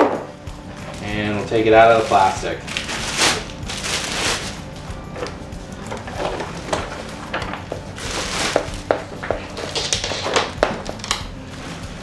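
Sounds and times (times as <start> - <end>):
plastic wrapping crinkling: 0.8 - 12.0
styrofoam packing knocks: 6.7 - 11.3.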